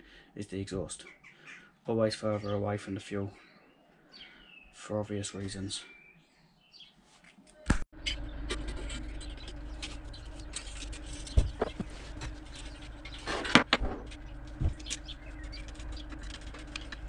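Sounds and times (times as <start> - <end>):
steady low hum: 8.0 - 17.0
metal pipe rustling and clicks: 8.5 - 17.0.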